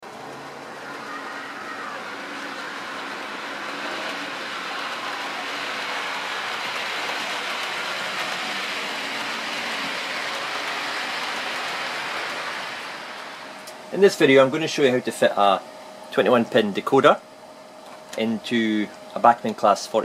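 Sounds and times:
model train rolling on track: 0.0s - 15.3s.

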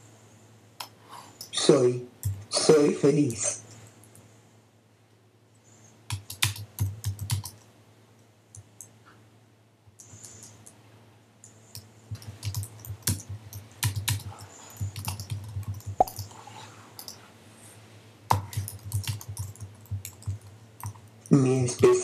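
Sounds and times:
keyboard keystroke clicks: 11.8s - 16.3s.

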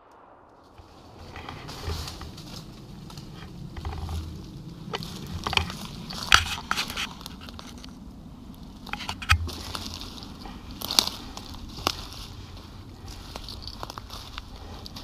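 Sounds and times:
footsteps crunching dry leaves: 8.9s - 15.0s.

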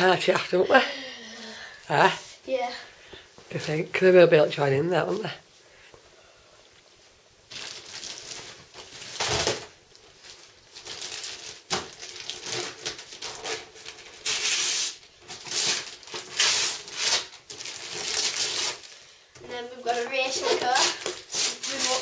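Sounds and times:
wrapping paper tearing: 7.5s - 19.1s, 19.8s - 22.0s.

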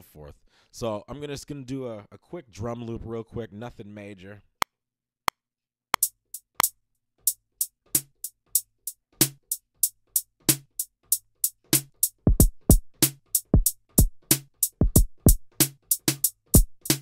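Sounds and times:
hi-hats: 10.2s - 17.0s
kick drum: 12.3s - 12.8s, 14.8s - 15.4s, 16.6s - 16.8s.

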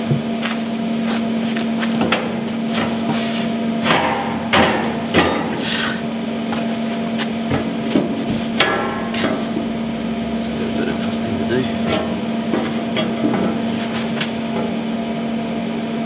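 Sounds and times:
steady low hum: 0.0s - 16.0s
steel plate clunking and knocking: 3.8s - 5.6s, 7.4s - 9.7s, 11.8s - 13.7s.

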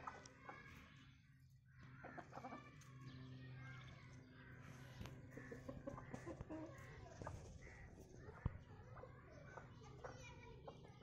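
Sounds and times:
chickens clucking softly: 2.0s - 2.9s, 5.1s - 7.6s.

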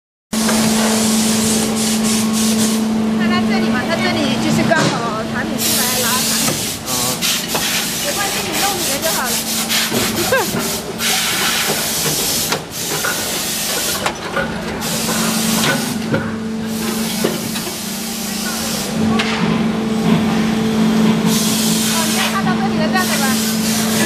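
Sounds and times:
machine humming: 0.4s - 24.0s
loud hiss: 5.5s - 14.1s, 23.0s - 24.0s
machine clicks and knocks: 11.6s - 17.7s.

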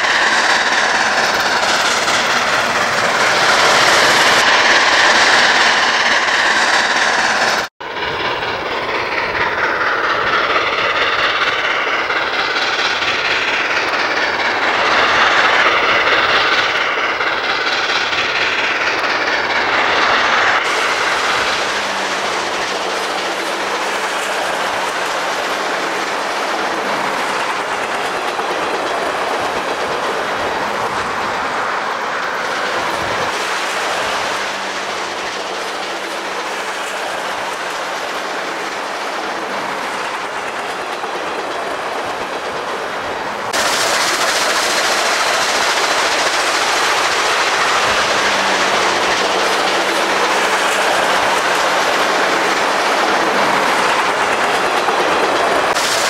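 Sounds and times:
train rumbling on rails: 0.0s - 56.0s.

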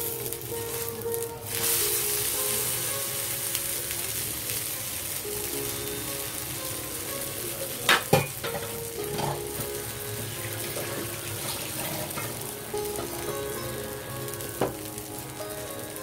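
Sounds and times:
batter sizzling on griddle: 0.0s - 16.0s.

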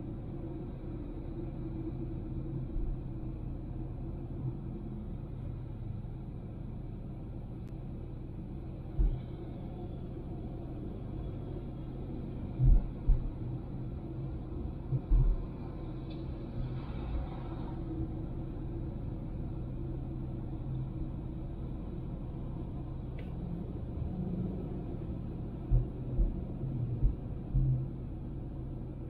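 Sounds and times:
car road and engine rumble: 0.0s - 29.0s.

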